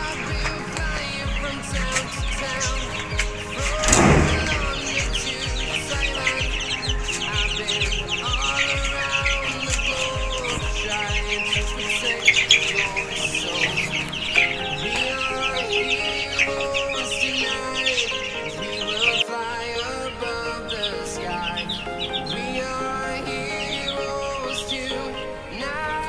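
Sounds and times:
background music with beat: 0:00.0 - 0:26.0
chicks peeping: 0:00.0 - 0:26.0.

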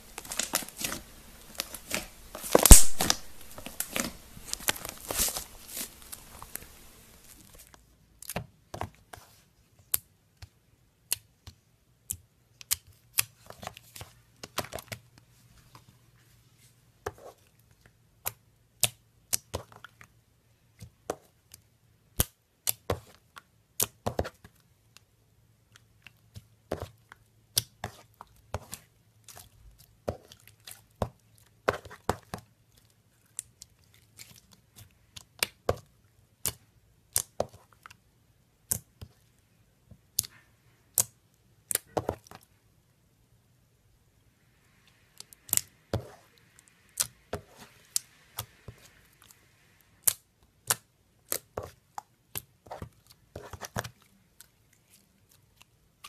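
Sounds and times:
slime clicking and popping: 0:00.2 - 0:07.4.

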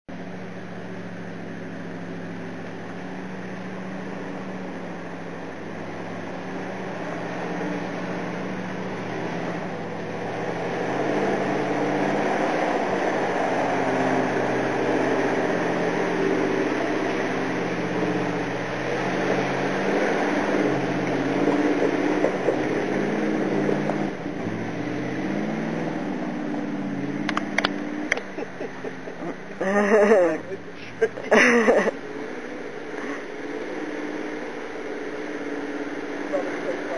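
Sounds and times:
truck engine labouring through mud: 0:00.1 - 0:36.9.

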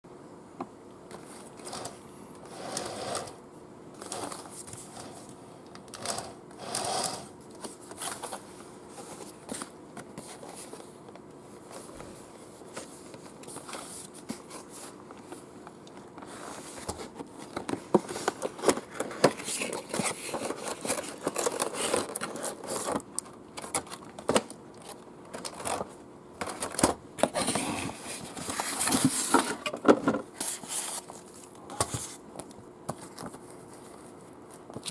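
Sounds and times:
cardboard sliding and scraping: 0:01.2 - 0:03.4.

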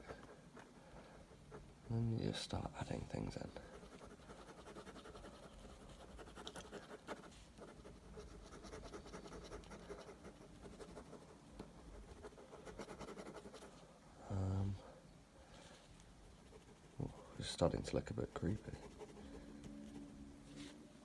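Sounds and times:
pen scratching on paper: 0:03.6 - 0:13.7, 0:18.5 - 0:20.0.

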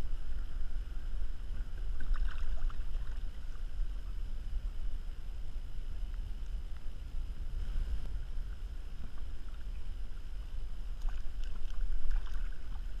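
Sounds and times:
wind rumbling on microphone: 0:00.0 - 0:13.0
light water splashing: 0:01.5 - 0:04.3, 0:07.7 - 0:13.0.

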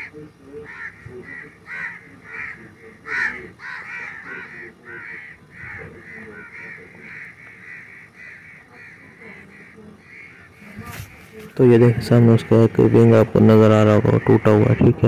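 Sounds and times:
kite giving sharp distress calls: 0:10.1 - 0:12.1.

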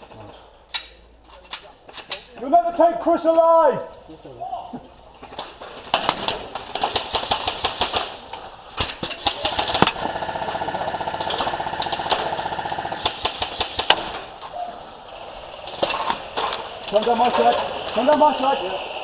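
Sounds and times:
airsoft rifles firing: 0:05.9 - 0:14.4.

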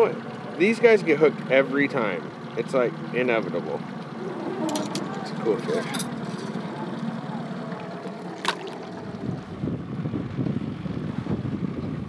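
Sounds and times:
boat engine hum: 0:00.0 - 0:12.0
wind buffeting microphone: 0:04.1 - 0:12.0.

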